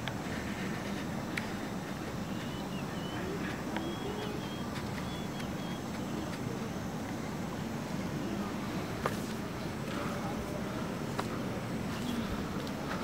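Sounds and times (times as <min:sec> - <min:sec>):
outdoor background noise: 0:00.0 - 0:13.0
high bird chirps: 0:02.2 - 0:06.3.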